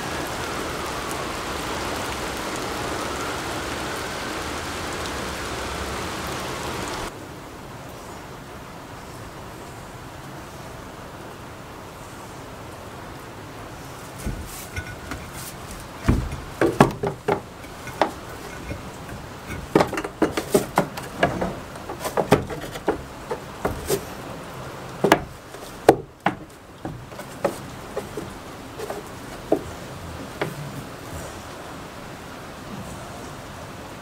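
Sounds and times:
rain hissing: 0:00.0 - 0:34.0
goat hooves knocking on wood: 0:14.1 - 0:30.9.

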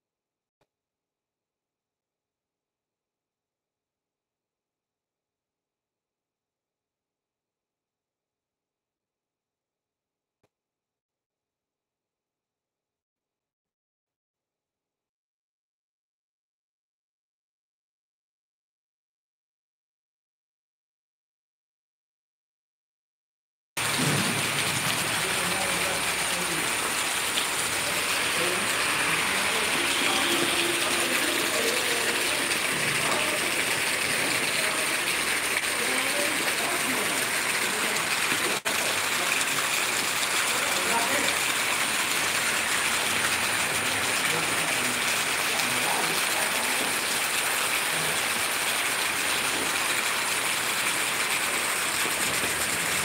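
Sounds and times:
steady rain falling: 0:23.8 - 0:53.0.

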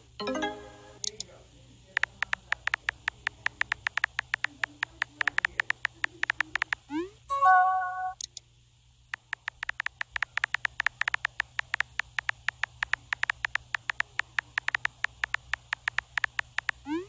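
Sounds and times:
phone keyboard typing clicks: 0:02.0 - 0:06.9, 0:09.2 - 0:16.9.

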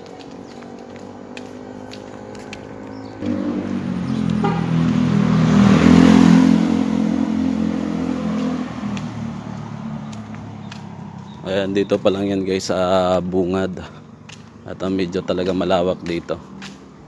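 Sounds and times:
small motorcycle engine passing: 0:00.0 - 0:11.6.

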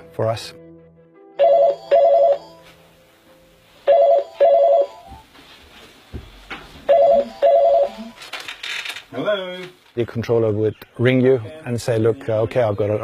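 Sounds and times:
telephone ringing: 0:01.4 - 0:02.6, 0:03.8 - 0:05.2, 0:06.9 - 0:08.2.

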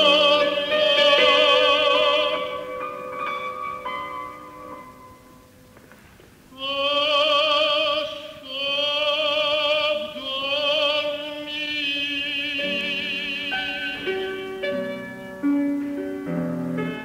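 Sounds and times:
man singing opera: 0:00.0 - 0:02.9, 0:06.5 - 0:14.6.

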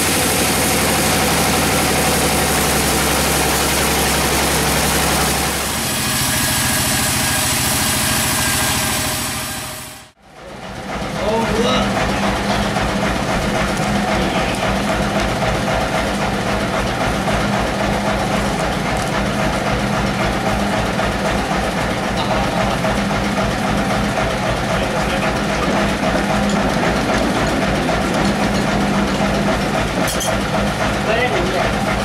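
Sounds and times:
sawmill machinery humming: 0:00.0 - 0:32.0.

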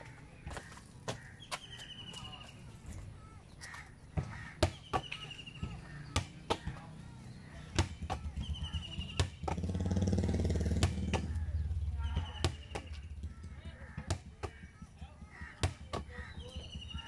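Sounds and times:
motor vehicle engine hum: 0:05.6 - 0:15.4.

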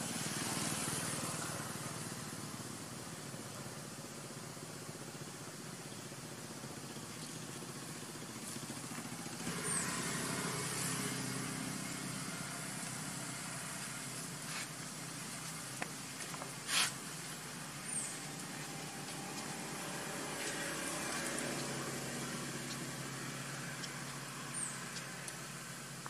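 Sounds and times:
vehicle engine running: 0:00.0 - 0:26.0.

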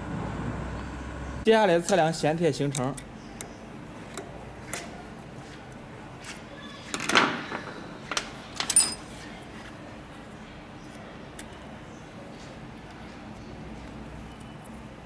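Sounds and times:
ringing metallic clink: 0:08.7 - 0:09.0.

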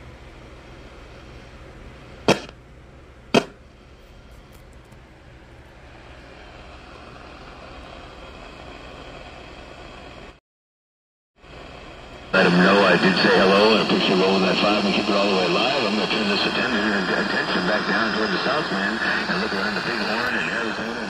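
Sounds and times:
radio static hiss: 0:11.7 - 0:21.0
sharp radio crackles: 0:12.4 - 0:21.0.

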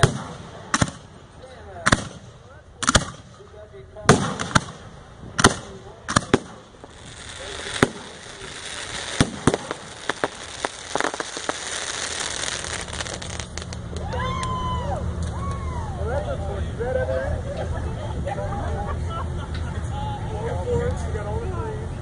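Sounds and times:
fireworks crackling: 0:00.0 - 0:14.6
firework shells bursting: 0:04.1 - 0:14.1.

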